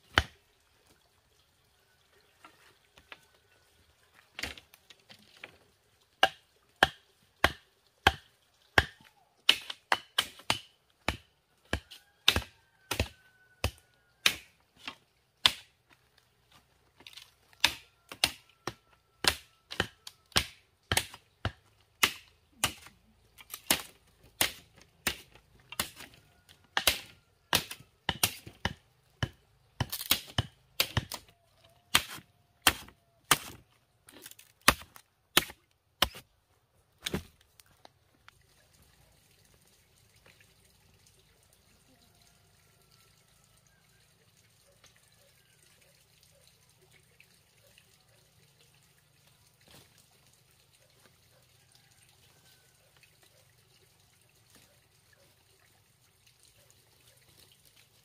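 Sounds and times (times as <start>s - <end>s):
hand tool knocking bamboo stakes: 6.2s - 15.7s, 17.0s - 31.3s, 31.9s - 36.2s.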